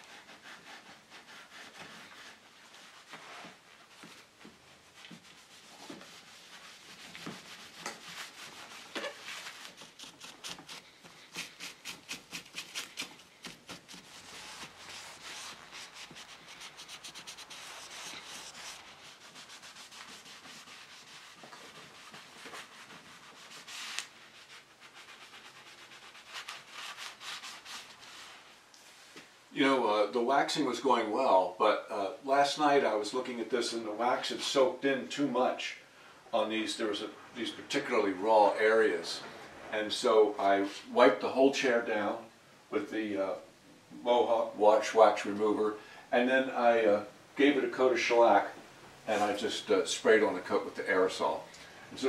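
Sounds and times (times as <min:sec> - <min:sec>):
steel wool rubbing wood: 0:00.0 - 0:28.6.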